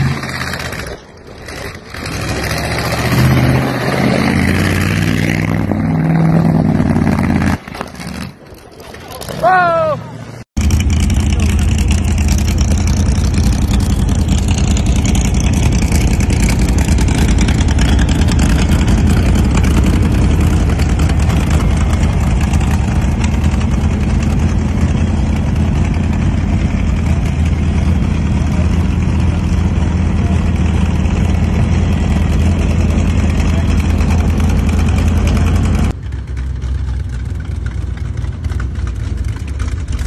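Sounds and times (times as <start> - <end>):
truck engine idling loudly: 10.7 - 40.0.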